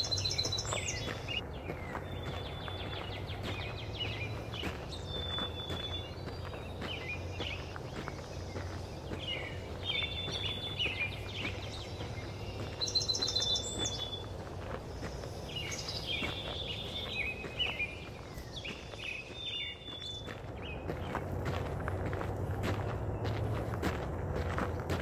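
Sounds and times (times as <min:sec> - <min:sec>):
footsteps on gravel: 0:00.0 - 0:25.0
low background rumble: 0:00.0 - 0:25.0
songbirds singing: 0:00.0 - 0:25.0.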